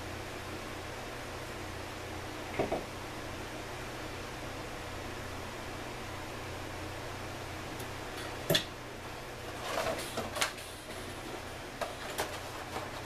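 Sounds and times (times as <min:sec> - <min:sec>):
steady low hum: 0:00.0 - 0:13.0
paper rustling and clatter: 0:09.5 - 0:11.1, 0:11.8 - 0:13.0.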